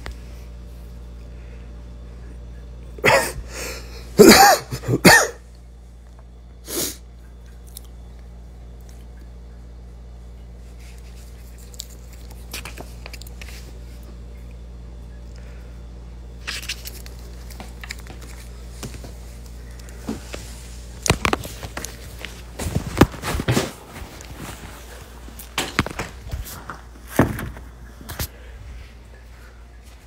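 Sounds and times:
person coughing: 3.0s - 5.5s
paper pages rustling: 10.7s - 14.0s, 16.4s - 28.3s.

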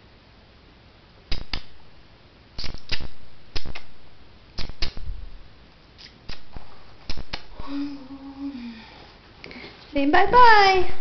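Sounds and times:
sharp clicks in pairs: 1.3s - 1.8s, 2.6s - 3.9s, 4.6s - 5.0s, 6.0s - 6.5s, 7.1s - 7.5s.

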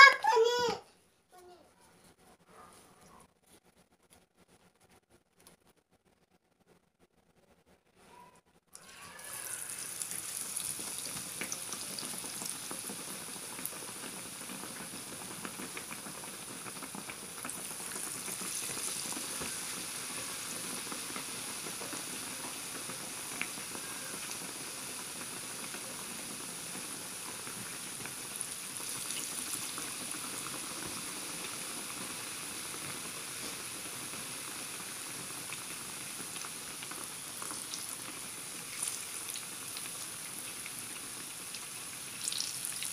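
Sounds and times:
food deep-frying in oil: 8.8s - 42.9s.

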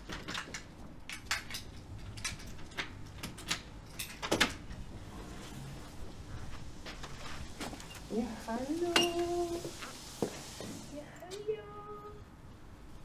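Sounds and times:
keys jingling: 0.2s - 4.6s.

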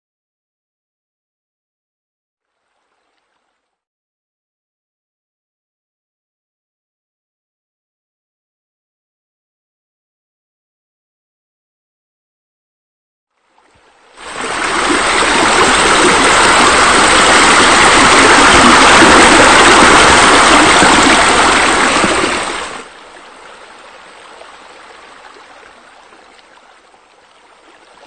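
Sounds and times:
water rushing and splashing: 13.5s - 28.0s.

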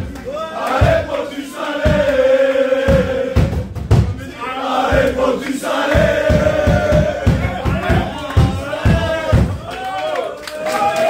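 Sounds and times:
young men chanting in unison: 0.2s - 9.9s.

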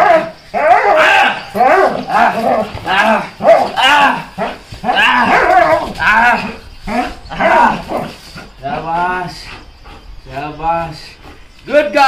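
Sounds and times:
dog barking loudly: 0.0s - 8.1s.

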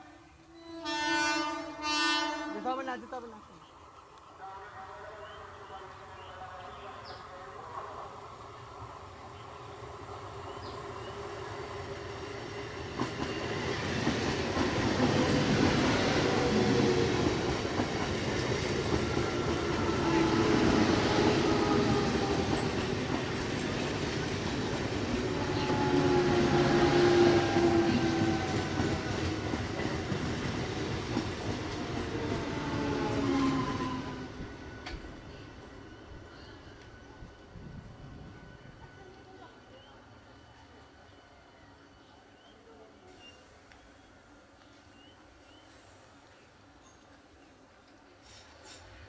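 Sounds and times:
train wheels clattering over rails: 12.0s - 33.9s.

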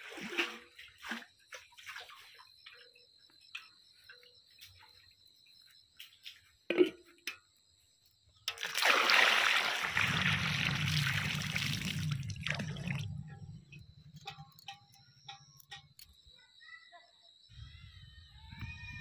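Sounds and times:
water pouring into buckets: 0.0s - 2.3s, 8.5s - 13.5s
water dripping: 8.5s - 16.2s.

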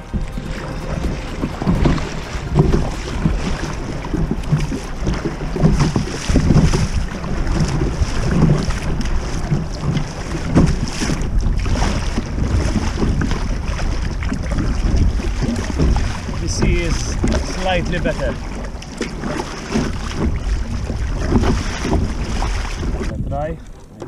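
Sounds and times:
waves slapping against hull: 0.0s - 24.0s
wind on microphone: 0.0s - 24.0s.

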